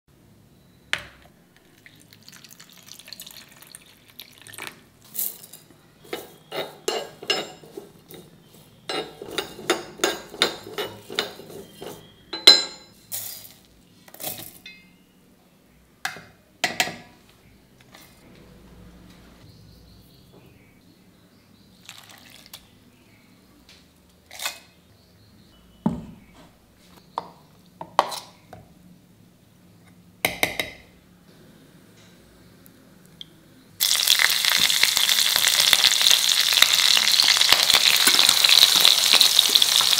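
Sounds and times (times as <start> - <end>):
spoon stirring seeds in iron pan: 6.0 - 12.2.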